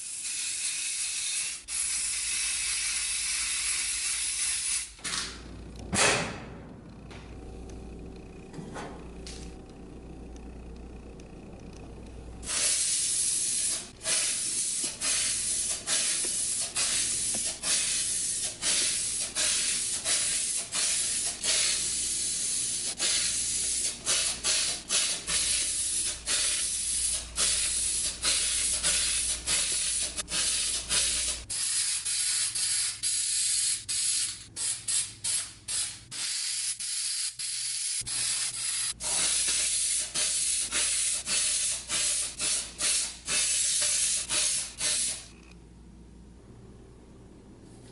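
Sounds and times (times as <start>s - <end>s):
spray paint can hissing: 0.0s - 5.0s, 12.4s - 45.3s.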